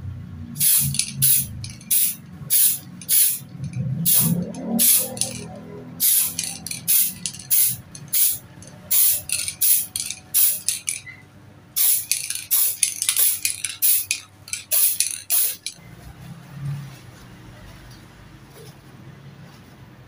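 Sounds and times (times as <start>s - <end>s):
spray paint can hissing: 0.6s - 11.2s, 11.8s - 15.8s.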